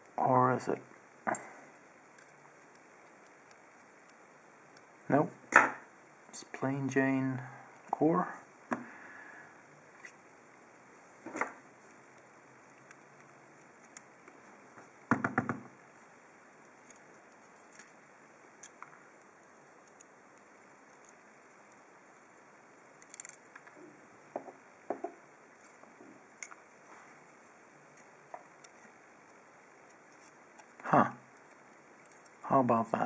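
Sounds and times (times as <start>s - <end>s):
metal lock parts clicking: 23.0s - 23.4s.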